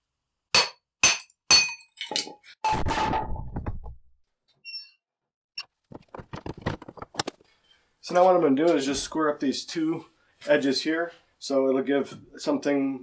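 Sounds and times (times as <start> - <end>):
sledgehammer striking steel wedge: 0.6 - 1.8.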